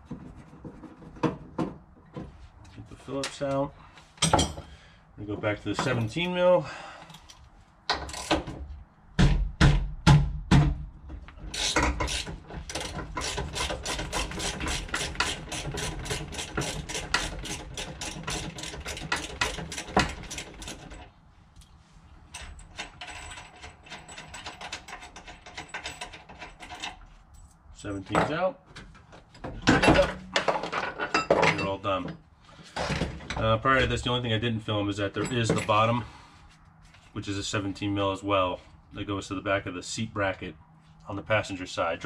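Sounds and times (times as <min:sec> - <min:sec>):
loud knocks: 0:09.2 - 0:10.8.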